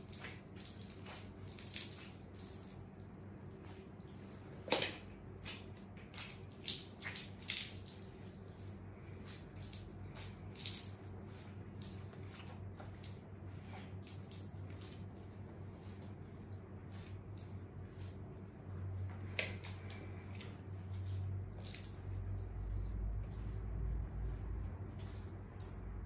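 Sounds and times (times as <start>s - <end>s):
water splashing and dripping: 0.0s - 3.2s, 3.9s - 15.1s, 21.6s - 22.5s
steady low hum: 0.0s - 26.0s.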